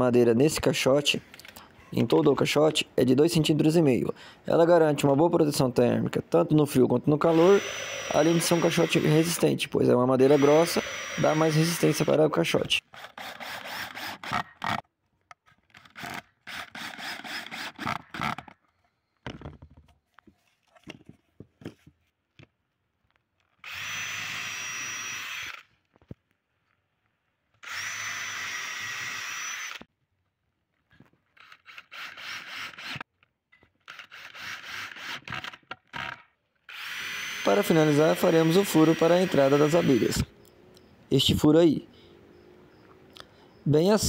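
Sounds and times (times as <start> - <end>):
drill whining through wood: 7.1 - 14.8, 15.7 - 18.5, 23.6 - 25.8, 27.6 - 29.9, 31.4 - 33.1, 33.8 - 35.7, 36.7 - 40.3
cordless drill driving screws: 7.2 - 9.5, 10.2 - 14.8, 15.7 - 18.5, 23.6 - 25.7, 27.6 - 29.9, 31.4 - 33.1, 33.8 - 40.3.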